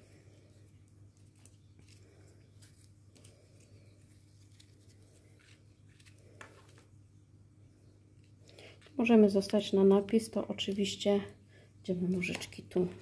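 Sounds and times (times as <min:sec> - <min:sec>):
faint paper rustling: 0:00.0 - 0:07.2
low steady hum: 0:00.0 - 0:13.0.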